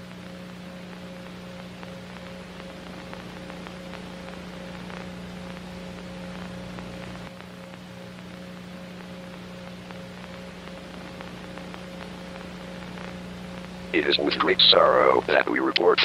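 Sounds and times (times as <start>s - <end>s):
electrical hum: 0.0s - 16.0s
hiss and crackling static: 0.0s - 16.0s.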